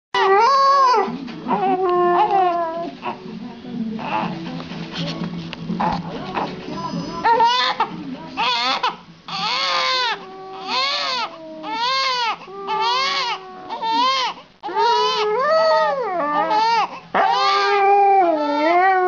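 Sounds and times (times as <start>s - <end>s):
dog howling: 0.2s - 3.0s, 8.4s - 19.0s
baby crying: 0.2s - 3.2s, 7.1s - 18.8s.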